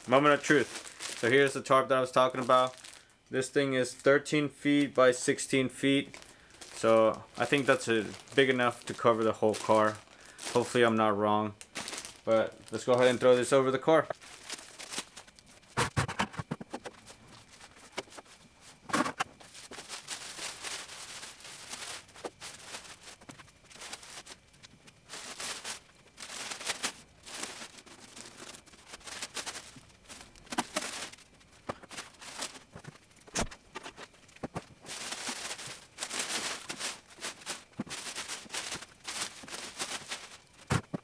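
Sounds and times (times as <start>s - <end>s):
plastic sheeting rustling: 0.0s - 4.1s, 4.7s - 15.8s, 17.0s - 33.0s, 33.8s - 40.8s.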